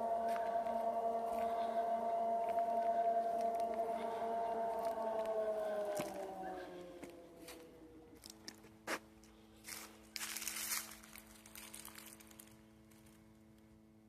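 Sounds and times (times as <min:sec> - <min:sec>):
steady hum of held tones: 0:00.0 - 0:14.0
light crunching and rustling: 0:02.4 - 0:13.3.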